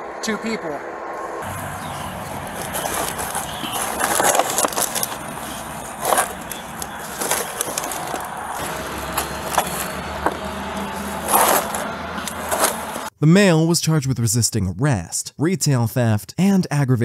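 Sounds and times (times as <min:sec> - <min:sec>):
rough rustling and scraping: 0:01.4 - 0:13.1.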